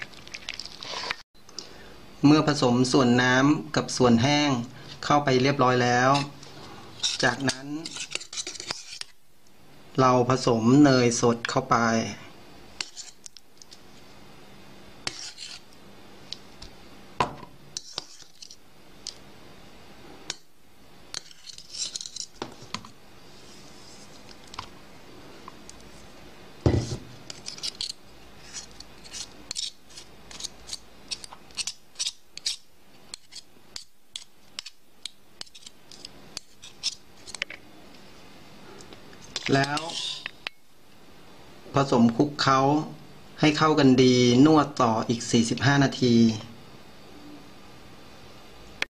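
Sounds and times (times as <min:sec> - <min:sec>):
spoon scraping bowl: 0:06.0 - 0:09.2, 0:12.8 - 0:13.8, 0:15.0 - 0:15.7, 0:17.7 - 0:18.6, 0:21.1 - 0:24.6, 0:26.7 - 0:34.8, 0:35.4 - 0:37.5, 0:39.2 - 0:40.4.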